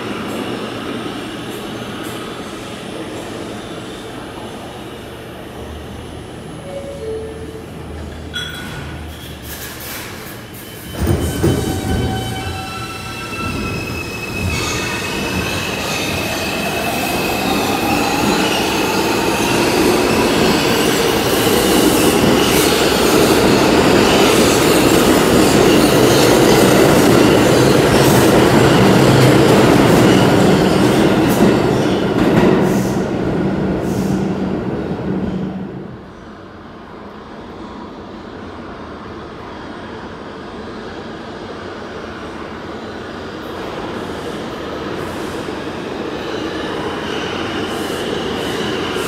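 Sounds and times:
subway train pulling out: 0:00.0 - 0:49.0
squealing wheels: 0:09.1 - 0:19.8.

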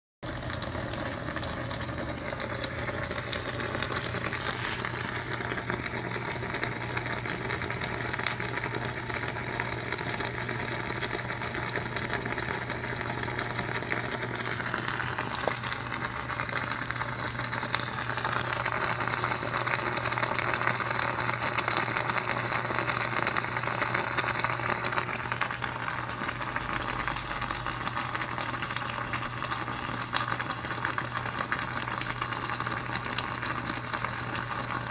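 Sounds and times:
steady electrical hum: 0:00.3 - 0:34.9
crackling fizzing hiss: 0:00.4 - 0:06.9.

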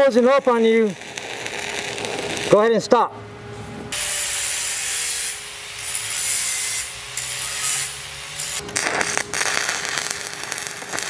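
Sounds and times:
welding arc crackling: 0:00.0 - 0:02.9, 0:03.9 - 0:11.0
angle grinder grinding metal: 0:04.0 - 0:11.0.

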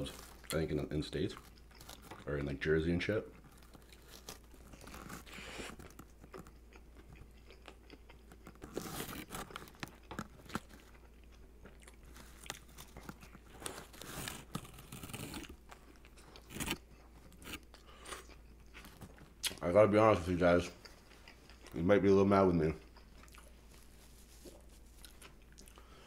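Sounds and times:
crunching toasted bread: 0:00.0 - 0:02.5, 0:03.3 - 0:19.6
chewing: 0:01.3 - 0:02.4, 0:03.3 - 0:19.6, 0:20.6 - 0:21.8, 0:22.8 - 0:26.0.

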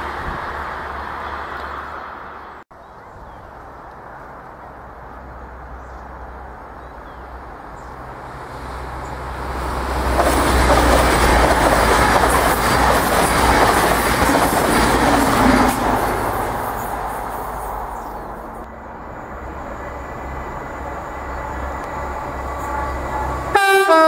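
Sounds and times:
diesel train engines passing: 0:00.0 - 0:24.0
wheels clacking over rail joints: 0:09.0 - 0:18.7.

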